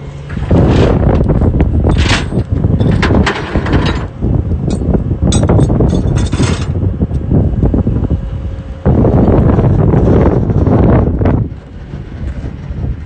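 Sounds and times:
wind buffeting microphone: 0.0s - 13.0s
metallic clanking and rattling: 0.2s - 6.8s.

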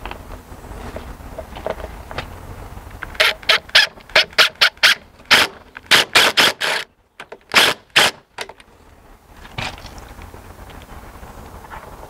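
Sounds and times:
impact driver rattling: 3.1s - 8.6s.

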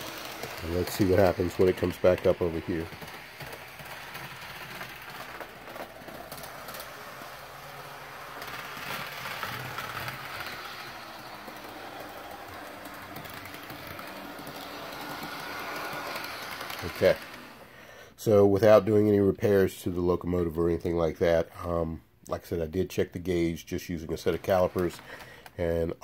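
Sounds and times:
model train motor whirring: 0.0s - 17.8s, 24.2s - 25.6s
wheels on rails: 0.0s - 17.8s, 24.0s - 25.8s.

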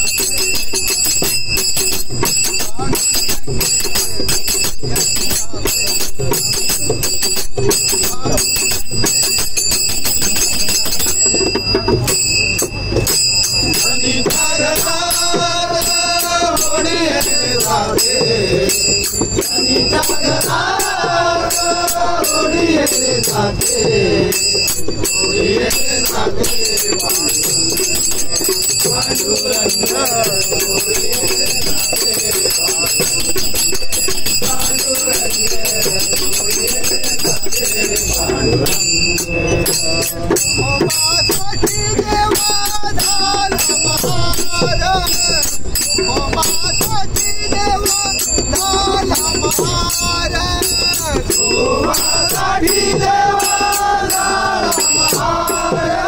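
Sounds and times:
brass hand cymbals ringing: 0.0s - 56.0s
hand drum: 0.0s - 56.0s
men singing: 13.5s - 56.0s.

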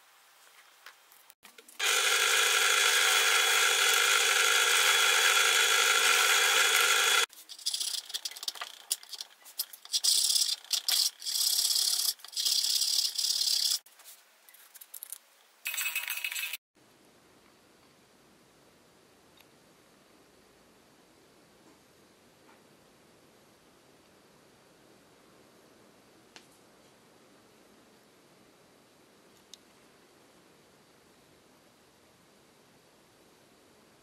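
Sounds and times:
power tool running: 1.8s - 7.3s.

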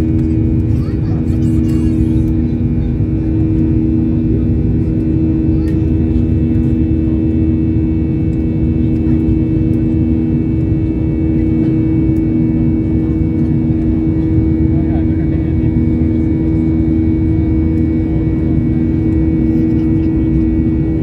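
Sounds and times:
deep cabin rumble: 0.0s - 21.0s
jet engines droning: 0.0s - 21.0s.

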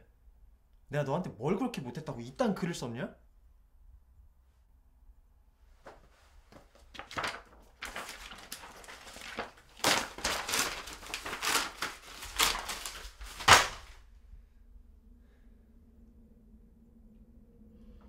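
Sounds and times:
paper rustling and crumpling: 5.8s - 14.0s.

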